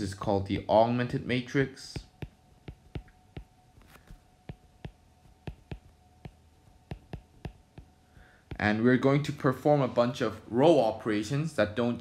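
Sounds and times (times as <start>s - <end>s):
faint steady hum: 0.0s - 12.0s
stylus tapping on screen: 0.2s - 1.2s, 1.8s - 8.9s.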